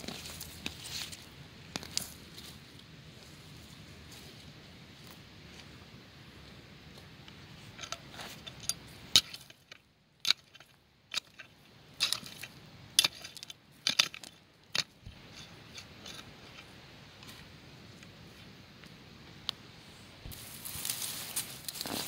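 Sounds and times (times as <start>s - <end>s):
metal clinking on stones: 7.8s - 16.6s
hoe chopping stony soil: 8.0s - 16.7s, 20.2s - 22.0s.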